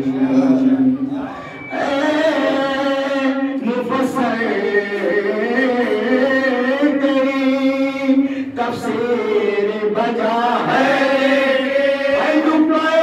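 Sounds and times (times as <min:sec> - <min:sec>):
men chanting into a microphone: 0:01.7 - 0:13.0.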